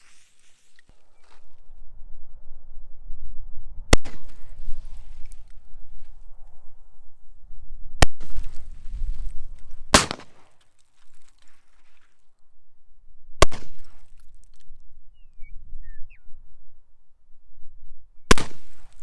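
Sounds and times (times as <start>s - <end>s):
gunshot echo: 3.9s - 4.9s, 9.9s - 10.6s, 13.4s - 14.1s, 18.3s - 19.0s.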